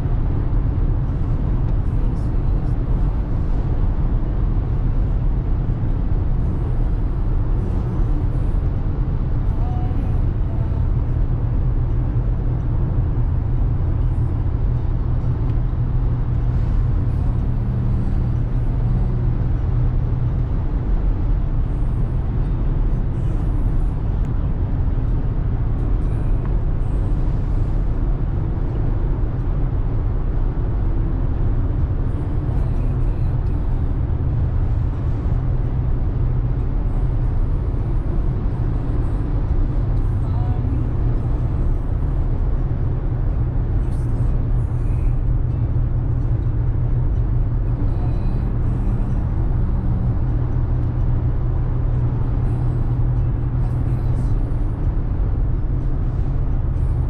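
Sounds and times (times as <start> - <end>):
car cabin road drone: 0.0 - 57.0.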